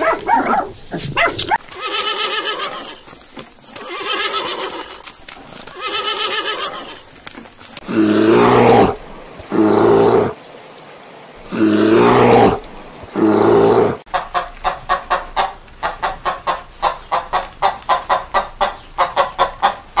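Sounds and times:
horse whinny: 0:01.8 - 0:03.0, 0:03.8 - 0:05.0, 0:05.7 - 0:07.0, 0:07.9 - 0:10.4, 0:11.5 - 0:12.6
bear calls: 0:07.8 - 0:10.4, 0:11.4 - 0:14.0
rooster clucking: 0:14.1 - 0:20.0.

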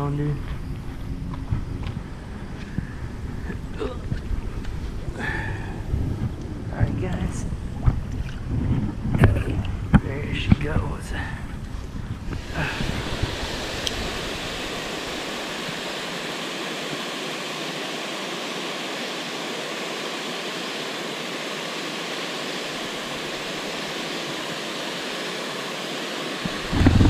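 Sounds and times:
water rushing over a dam: 0:12.3 - 0:27.0.

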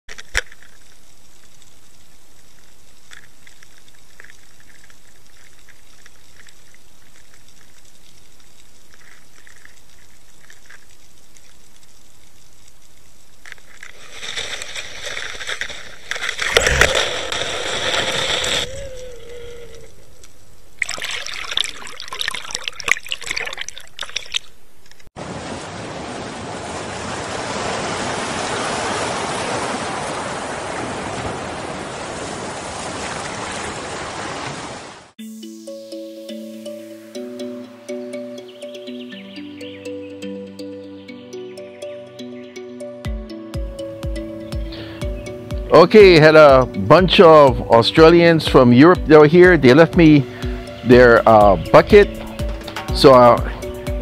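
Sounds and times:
faint clicks: 0:00.1 - 0:14.0
steady hiss: 0:00.2 - 0:20.8.

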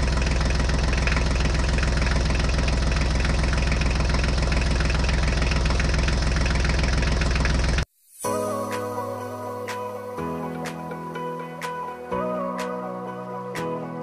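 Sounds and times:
diesel tractor engine idling: 0:00.0 - 0:07.8.

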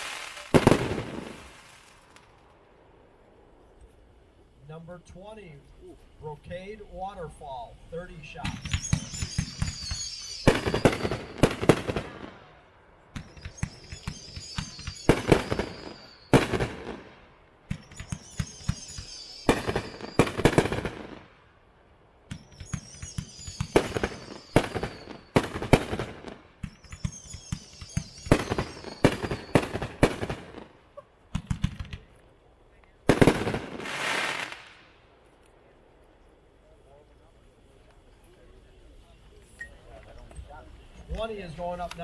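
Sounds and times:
firework bangs: 0:00.0 - 0:02.6, 0:08.2 - 0:21.5, 0:22.2 - 0:32.2, 0:33.0 - 0:35.1
firework whistles: 0:00.0 - 0:03.2, 0:07.3 - 0:21.3, 0:22.2 - 0:31.6, 0:33.1 - 0:35.0.

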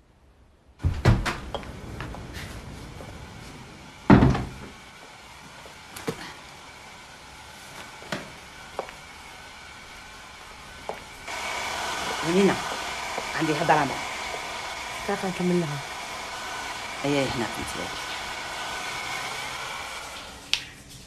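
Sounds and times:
sharp door bangs: 0:04.1 - 0:04.6
heavy thump: 0:04.1 - 0:04.7.

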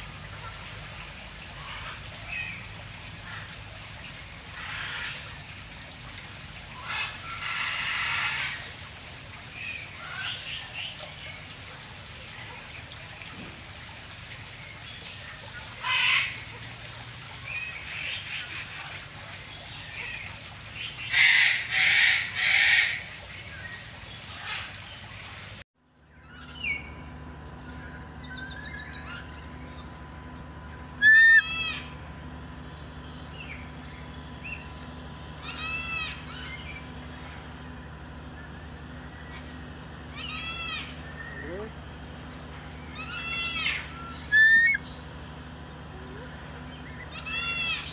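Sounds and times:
harsh bird calls: 0:30.7 - 0:32.0, 0:32.9 - 0:37.4, 0:38.3 - 0:41.8, 0:42.4 - 0:45.1, 0:46.0 - 0:47.9.

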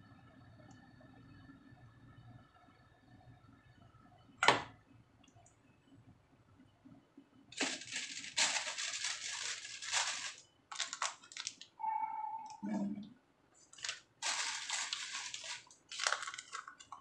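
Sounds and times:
dry crackly rustling: 0:07.5 - 0:11.8, 0:13.6 - 0:17.0.

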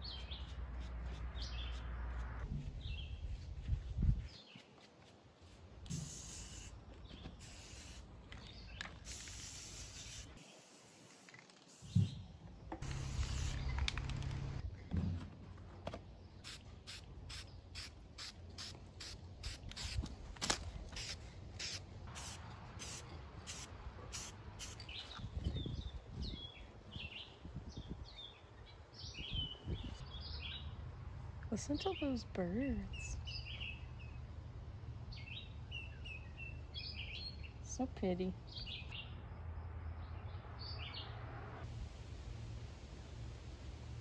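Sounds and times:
spray-paint can hissing: 0:05.9 - 0:06.8, 0:07.4 - 0:08.1, 0:09.0 - 0:12.0, 0:12.8 - 0:13.8, 0:16.4 - 0:20.0, 0:21.0 - 0:24.9.

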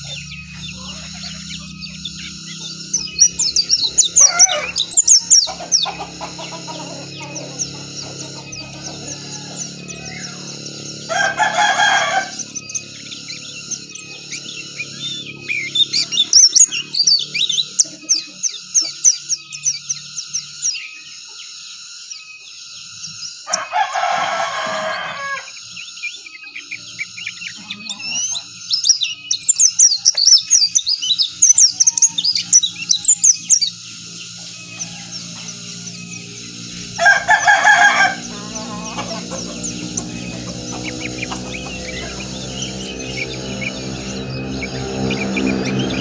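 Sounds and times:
rooster crowing: 0:00.0 - 0:16.4, 0:23.4 - 0:25.8, 0:31.8 - 0:46.0
bird twittering song: 0:00.0 - 0:46.0.

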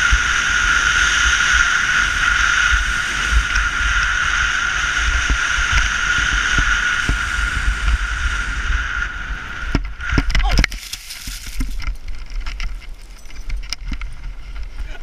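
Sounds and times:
snowboard hissing over snow: 0:00.0 - 0:09.7
wind rumbling on microphone: 0:00.0 - 0:15.0.

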